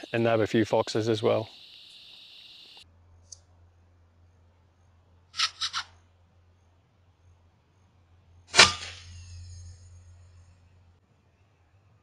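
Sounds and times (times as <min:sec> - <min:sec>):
faint steady low hum: 0:00.0 - 0:05.3
air rifle shot: 0:08.5 - 0:09.2.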